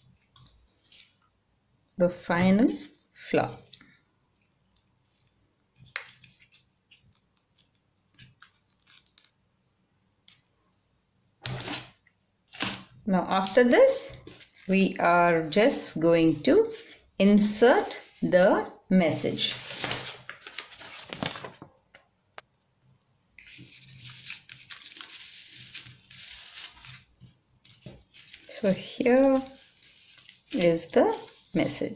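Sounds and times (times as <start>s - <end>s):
paper rustling: 0.0s - 1.4s, 4.4s - 9.4s, 14.2s - 15.0s, 19.3s - 22.0s, 23.4s - 31.9s.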